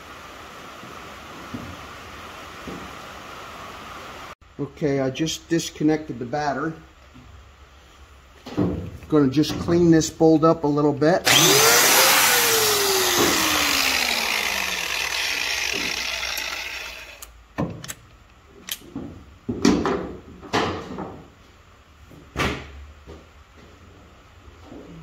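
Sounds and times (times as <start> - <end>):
angle grinder winding down: 11.2 - 17.3.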